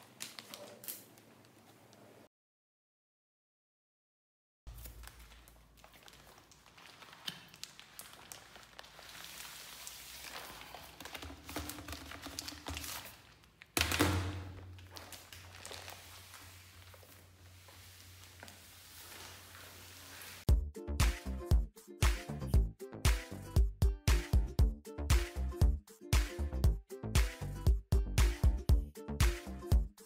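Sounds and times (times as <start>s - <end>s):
plastic bag crinkling: 0.0s - 1.5s, 4.7s - 20.4s.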